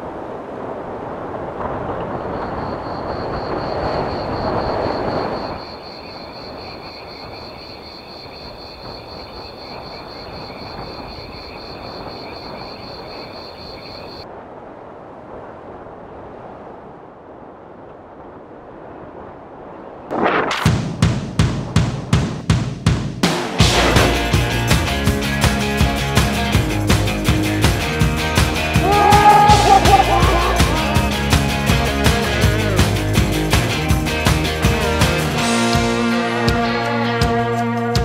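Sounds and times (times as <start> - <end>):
outdoor noise: 0.0 - 36.1.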